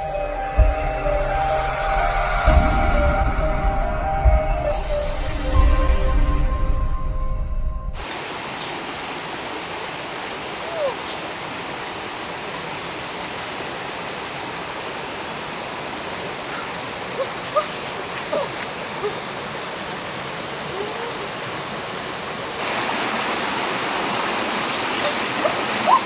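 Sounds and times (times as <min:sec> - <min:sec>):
running water rushing: 0:08.0 - 0:26.0.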